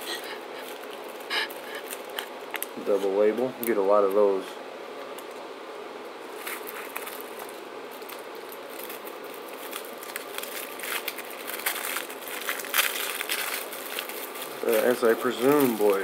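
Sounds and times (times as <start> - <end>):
paper wrapper crinkling and tearing: 0.0 - 3.2, 6.3 - 16.0
steady low hum: 0.0 - 16.0.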